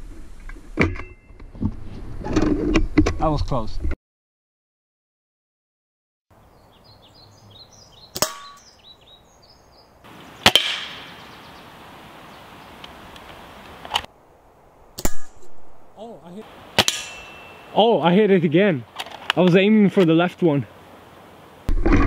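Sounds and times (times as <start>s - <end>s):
airsoft rifle cracks: 10.4s - 11.1s, 16.8s - 17.5s
pellets striking metal cans: 16.8s - 17.7s.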